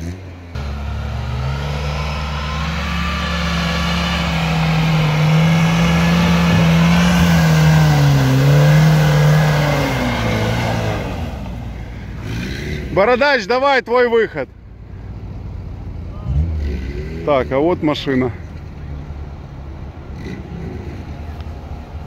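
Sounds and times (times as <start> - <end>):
car engine revving hard: 0.0 - 13.0.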